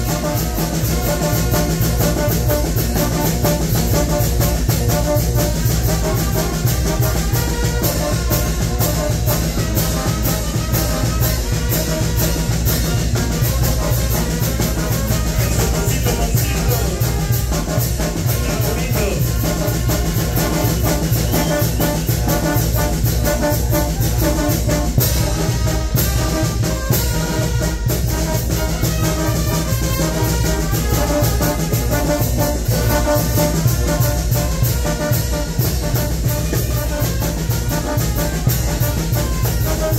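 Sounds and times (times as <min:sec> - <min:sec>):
drums dance beat: 0:00.0 - 0:26.7
trombones: 0:00.0 - 0:39.9
trumpets: 0:00.0 - 0:39.9
sousaphone bass line: 0:15.3 - 0:17.4, 0:18.0 - 0:19.7.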